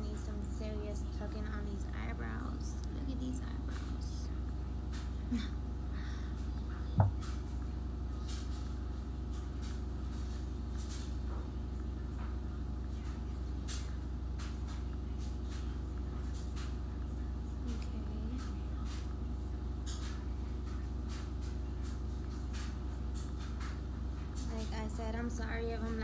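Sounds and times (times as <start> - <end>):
low background hum: 0.0 - 26.0.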